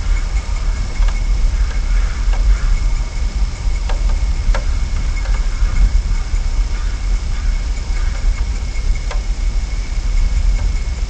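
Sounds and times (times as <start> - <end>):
faint high whine: 0.0 - 11.0
steady low rumble: 0.0 - 11.0
light clicks: 8.1 - 9.3.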